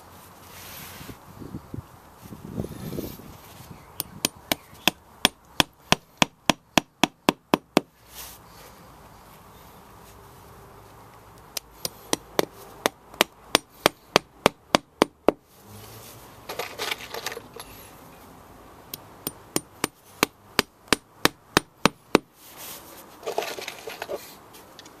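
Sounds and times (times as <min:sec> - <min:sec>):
hammer striking nail: 0:04.2 - 0:07.9, 0:11.8 - 0:15.4, 0:19.2 - 0:22.3.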